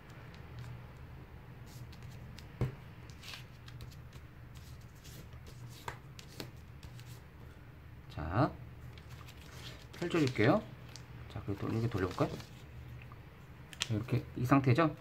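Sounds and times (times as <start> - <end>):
paper rustling and scraping: 8.9 - 12.7.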